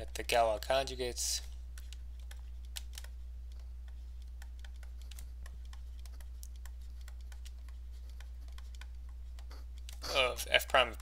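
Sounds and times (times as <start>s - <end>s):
low electrical hum: 0.0s - 11.0s
stylus clicking on a tablet: 1.7s - 10.0s.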